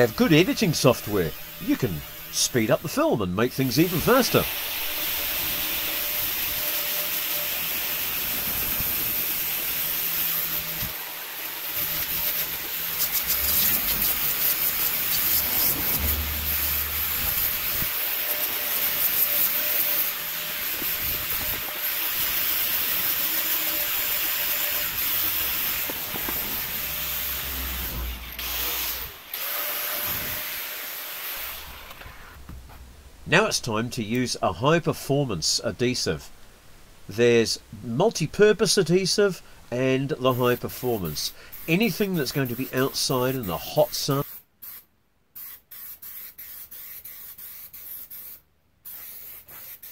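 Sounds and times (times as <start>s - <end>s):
angle grinder grinding foam: 0.0s - 32.6s.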